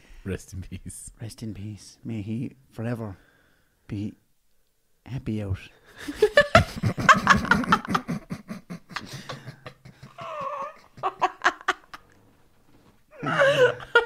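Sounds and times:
people laughing hard: 0:06.1 - 0:12.0, 0:13.2 - 0:14.0
high squealing laugh: 0:10.0 - 0:11.8.

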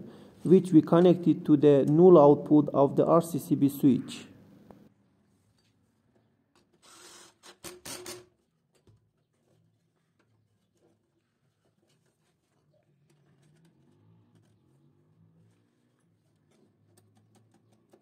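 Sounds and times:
wires rubbing and scraping: 0:10.2 - 0:17.8.

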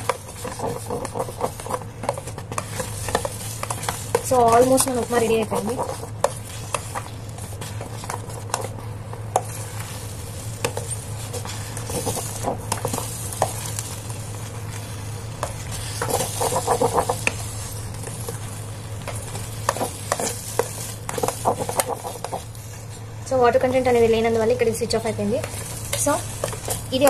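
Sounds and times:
faint sizzle: 0:00.0 - 0:27.0
steady low hum: 0:00.0 - 0:27.0
spoon scraping metal pot: 0:15.7 - 0:17.4.

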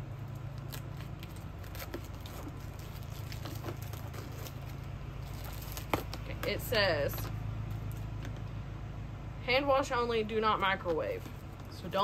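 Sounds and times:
packaging crinkling: 0:00.3 - 0:08.2.

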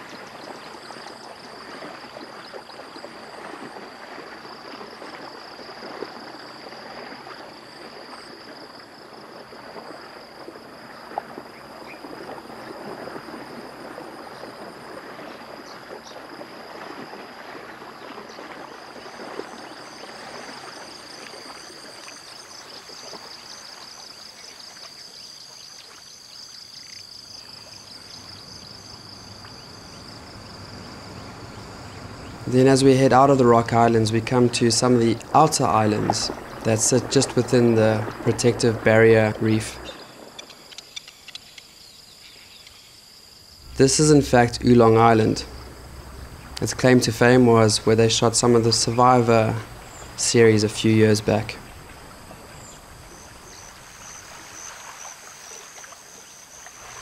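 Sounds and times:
insect chorus: 0:00.0 - 0:57.0
water lapping and trickling: 0:00.0 - 0:57.0.

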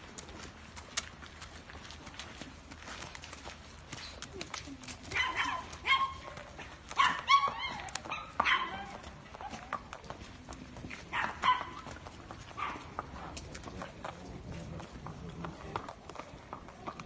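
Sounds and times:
hooves clip-clopping on cobblestones: 0:00.0 - 0:17.0
dog barking: 0:05.1 - 0:09.6, 0:11.1 - 0:11.9, 0:12.6 - 0:12.9.

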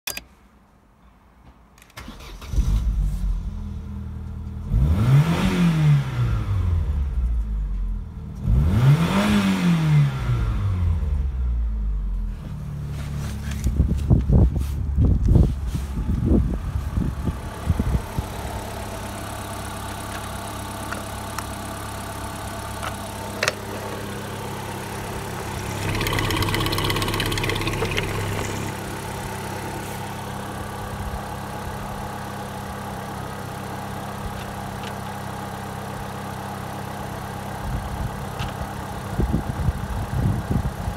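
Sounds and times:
car engine idling: 0:14.9 - 0:40.9.

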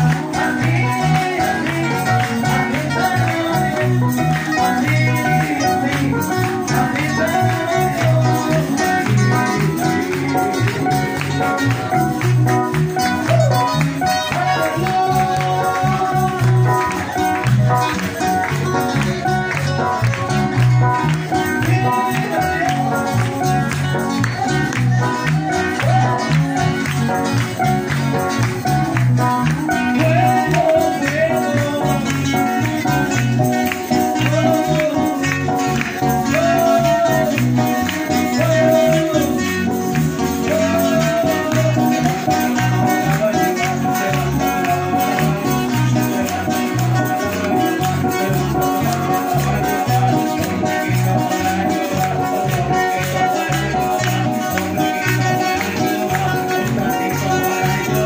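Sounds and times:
bass beat: 0:00.0 - 0:58.0
electric guitar: 0:00.0 - 0:58.0
lead melody: 0:00.0 - 0:58.0.

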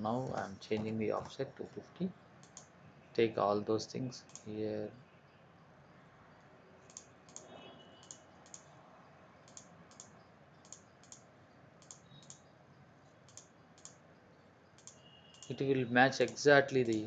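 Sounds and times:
computer mouse clicks: 0:02.4 - 0:02.8, 0:04.2 - 0:04.5, 0:06.8 - 0:08.8, 0:09.4 - 0:12.5, 0:13.2 - 0:14.0, 0:14.6 - 0:15.6, 0:16.2 - 0:17.0.

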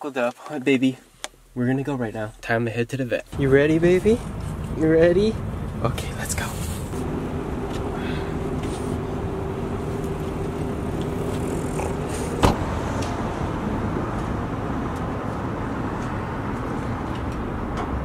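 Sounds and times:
traffic and vehicle hum: 0:01.0 - 0:18.0
car door slammed shut: 0:12.4 - 0:12.7.

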